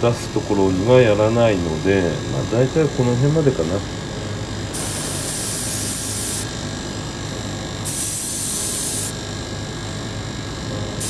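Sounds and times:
low steady hum: 0:00.0 - 0:11.0
airbrush spraying paint: 0:04.7 - 0:06.6, 0:07.8 - 0:09.2.

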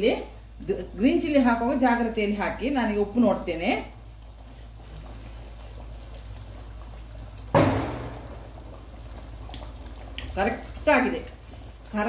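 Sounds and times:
thick curry bubbling: 0:00.2 - 0:12.0
loud wet splat: 0:07.5 - 0:08.7.

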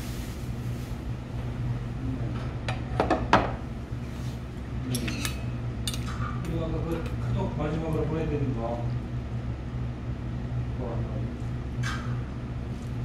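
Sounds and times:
tableware clinking on a table: 0:04.9 - 0:06.1.

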